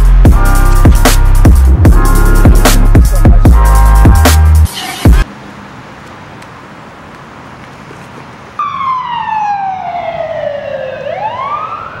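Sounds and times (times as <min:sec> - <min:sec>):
emergency vehicle siren wailing: 0:08.6 - 0:12.0.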